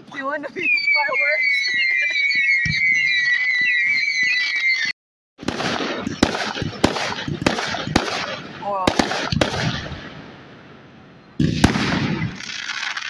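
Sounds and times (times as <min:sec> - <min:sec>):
firework shell whistling: 0:00.6 - 0:04.9
firework shells bursting bangs: 0:05.4 - 0:10.4, 0:11.4 - 0:13.0
fireworks crackling: 0:05.4 - 0:10.4, 0:11.4 - 0:13.0.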